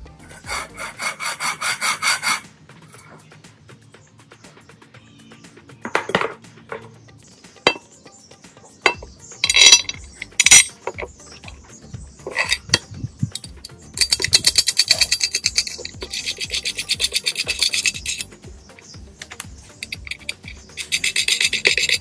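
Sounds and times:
small metal parts clinking: 8.9 - 11.6, 12.2 - 18.4, 19.2 - 22.0.

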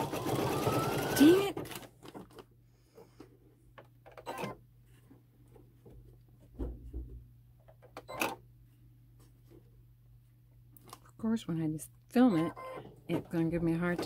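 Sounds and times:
knocks and dull thump: 6.5 - 7.3.

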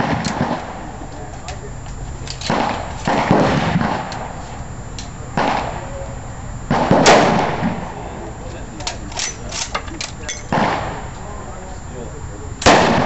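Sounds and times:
rifle shots echoing: 2.4 - 4.2, 6.7 - 8.0.

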